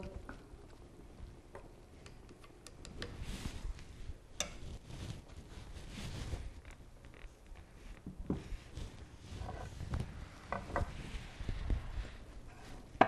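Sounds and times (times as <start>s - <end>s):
soft hiss: 0.0s - 13.0s
chopsticks clicking against clay pot: 2.0s - 3.2s, 4.4s - 4.6s.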